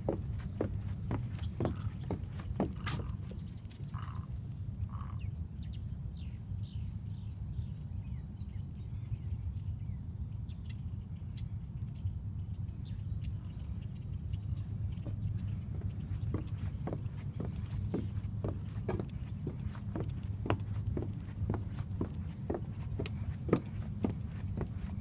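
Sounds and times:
birds chirping: 0.0 - 5.2, 12.8 - 25.0
steady low rumble: 8.4 - 25.0.

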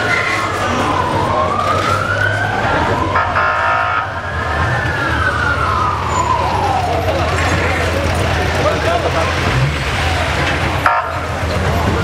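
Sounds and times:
siren blare: 0.0 - 8.1, 10.8 - 11.3
ambulance siren wailing: 0.0 - 9.2
vehicle engine rumbling: 0.0 - 12.0.

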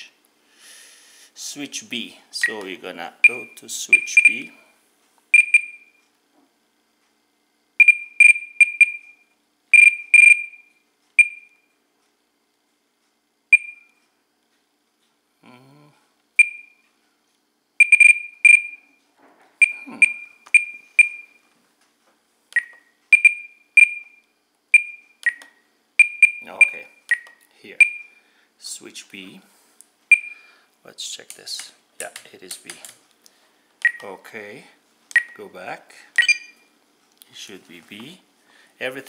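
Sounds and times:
transmitter beeping: 2.4 - 4.7, 5.3 - 6.0, 7.8 - 11.7, 13.5 - 14.0, 16.4 - 16.8, 17.8 - 19.0, 19.6 - 21.4, 22.5 - 28.2, 30.1 - 30.5, 33.8 - 34.2, 35.1 - 35.5, 36.2 - 36.7.

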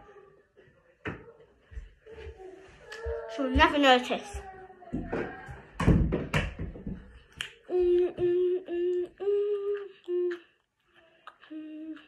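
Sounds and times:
girl humming: 7.7 - 10.6, 11.3 - 12.0.

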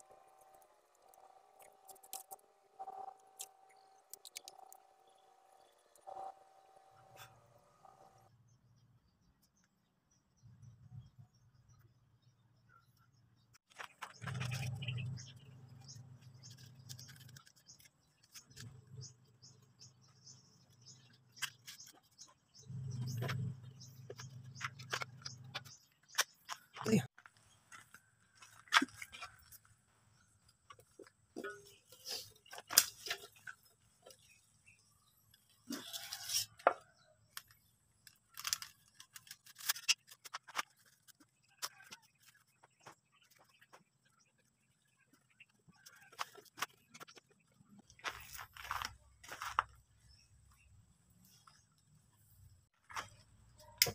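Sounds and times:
birds chirping: 0.1 - 29.5.

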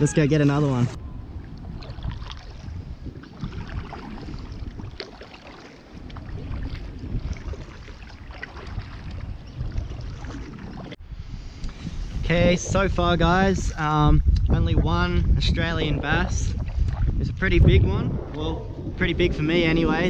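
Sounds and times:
wind on microphone: 0.0 - 20.0
paddle splashing in water: 1.3 - 11.0.

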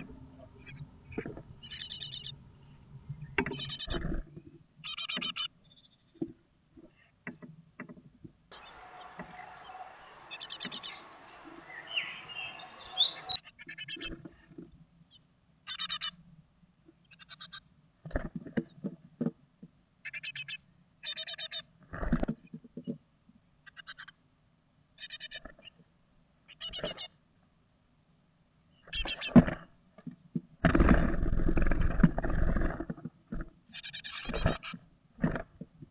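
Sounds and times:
outdoor noise: 0.0 - 35.9
chicks scratching and knocking on wood: 7.3 - 13.4
bird note: 8.5 - 13.4
nestlings buzzy calls: 8.5 - 14.1.

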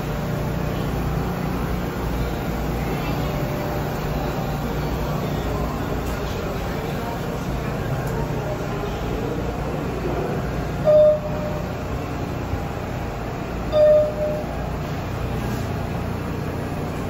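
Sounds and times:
subway train rumble: 0.0 - 17.0
brief high tones: 10.8 - 11.8, 13.7 - 14.6.

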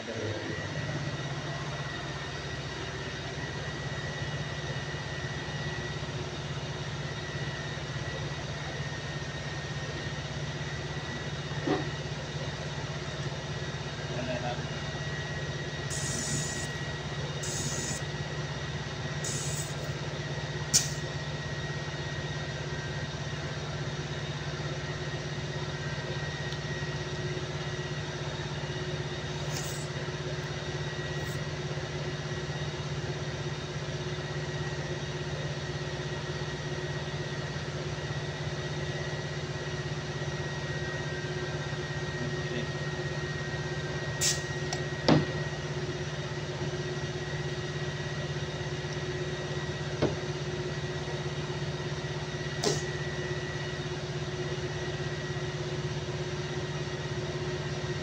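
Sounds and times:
low machinery hum: 0.0 - 58.0
compressed air hisses: 15.9 - 16.7, 17.4 - 18.0, 19.2 - 19.9, 20.7 - 21.0, 44.2 - 44.5.

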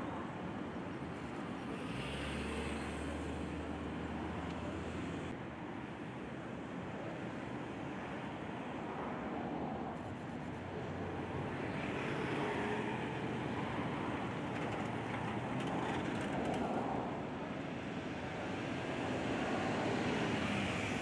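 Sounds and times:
distant road traffic rumble: 0.0 - 5.4, 10.6 - 21.0.

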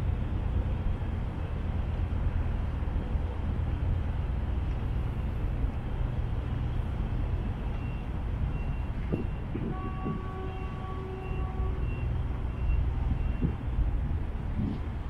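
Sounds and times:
horn-like tone: 9.2 - 13.5.

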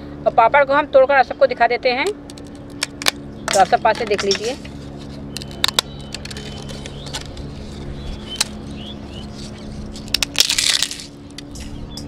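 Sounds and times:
papads snapping and crunching: 2.3 - 11.6.

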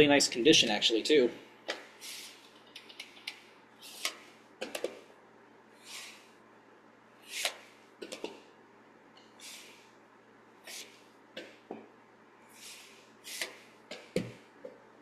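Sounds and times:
soft breathy puffs: 1.8 - 2.6, 3.4 - 4.5, 5.8 - 6.4, 9.3 - 10.0, 10.6 - 11.6, 12.4 - 14.2.

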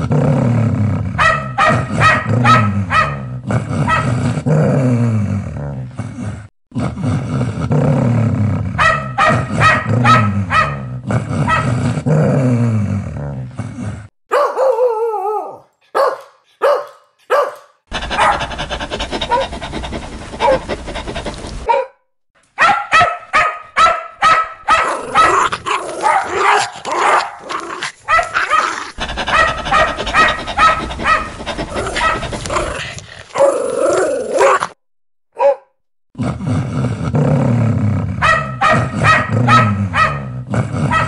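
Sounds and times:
dog barking: 1.2 - 4.2, 8.8 - 11.8, 14.3 - 19.6, 20.4 - 20.7, 21.6 - 22.0, 22.6 - 32.6, 35.4 - 35.7, 38.2 - 41.0.

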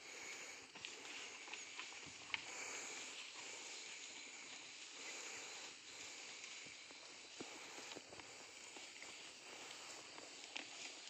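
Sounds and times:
small ticks: 0.2 - 11.0
cattle munching grass: 7.5 - 11.0.

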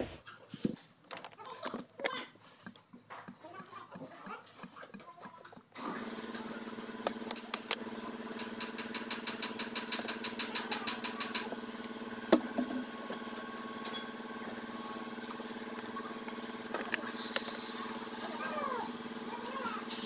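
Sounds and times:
engine idling: 5.8 - 20.0.

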